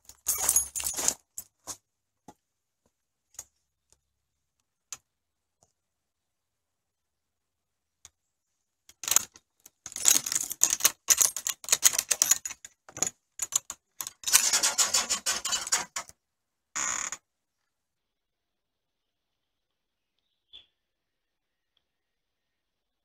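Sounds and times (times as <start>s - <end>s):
metal gate latch rattling: 9.9s - 16.1s.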